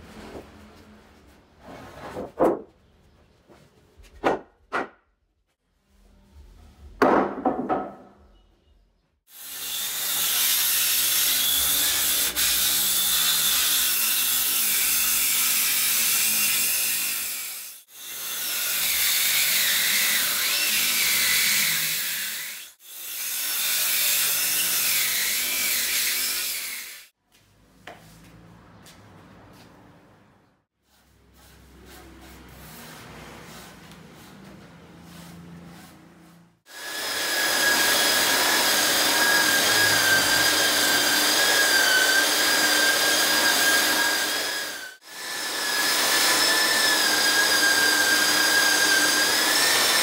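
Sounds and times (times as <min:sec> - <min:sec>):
wood plank knocking on floor: 0:07.0 - 0:08.0
circular saw cutting wood: 0:09.3 - 0:27.1, 0:35.1 - 0:50.0.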